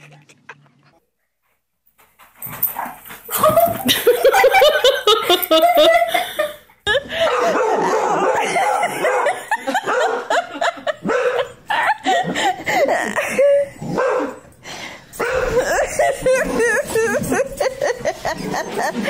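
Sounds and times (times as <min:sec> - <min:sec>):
dog barking: 0:07.2 - 0:10.4, 0:11.0 - 0:11.6, 0:13.9 - 0:14.4, 0:15.2 - 0:15.6.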